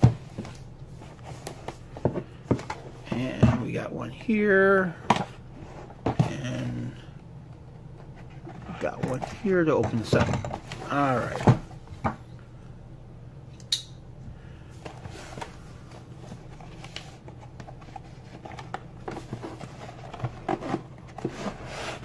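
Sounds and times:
low steady hum: 0.0 - 22.0
sharp click: 13.6 - 14.0
cardboard rubbing and tapping: 16.3 - 22.0.

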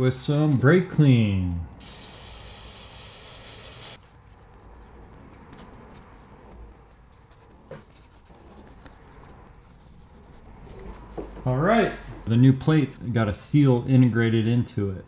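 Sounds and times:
aerosol can spraying: 1.8 - 4.0.

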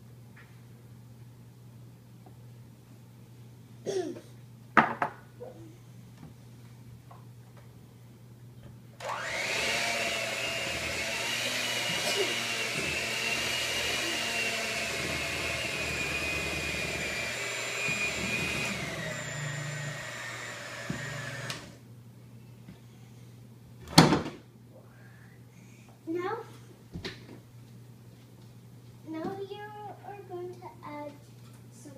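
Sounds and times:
electric hand mixer whine: 9.0 - 21.8.

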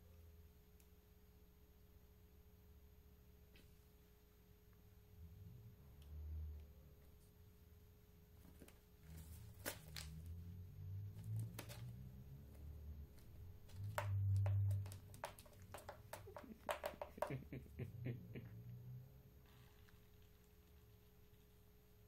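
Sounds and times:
faint steady hum: 0.0 - 22.0
newspaper rustling and clicks: 8.4 - 10.3, 11.2 - 12.1.

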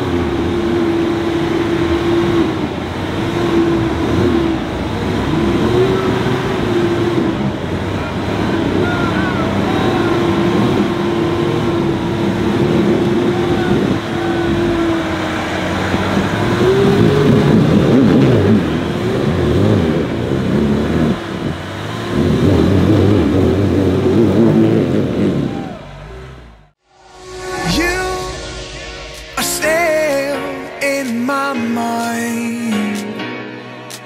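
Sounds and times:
engine revving in bursts: 0.0 - 26.8
steady winch whine: 0.0 - 30.8.

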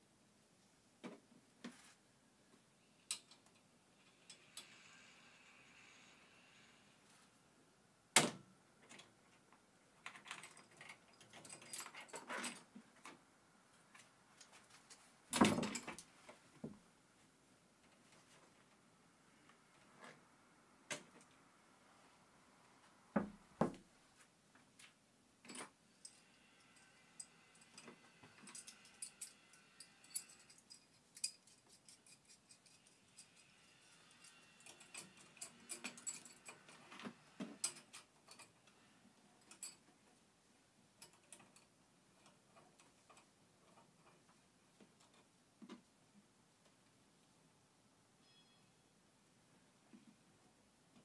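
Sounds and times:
faint squeaks: 48.2 - 48.9.

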